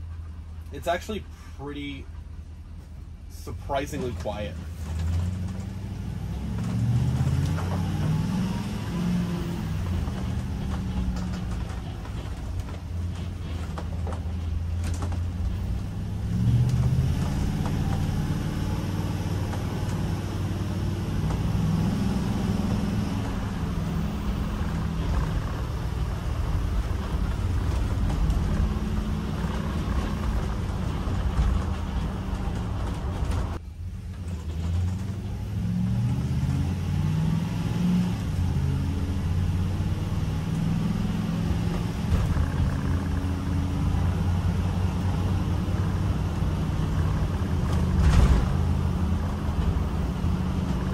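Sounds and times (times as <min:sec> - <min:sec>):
engine rumbling while driving: 0:00.0 - 0:50.9
clicks and creaks of vehicle body: 0:03.8 - 0:08.2, 0:09.8 - 0:18.3, 0:22.7 - 0:35.4, 0:41.7 - 0:44.4, 0:46.3 - 0:50.9.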